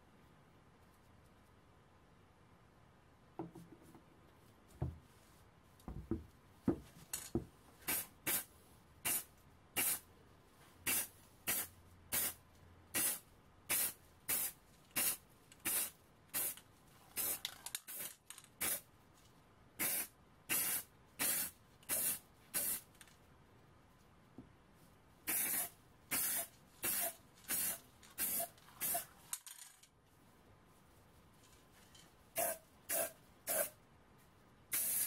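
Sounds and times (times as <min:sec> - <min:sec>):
spray-paint can hissing: 0:07.9 - 0:10.0, 0:10.8 - 0:12.4, 0:13.0 - 0:16.6, 0:17.2 - 0:18.8, 0:19.8 - 0:22.8, 0:25.3 - 0:29.6, 0:32.4 - 0:33.7, 0:34.7 - 0:35.0.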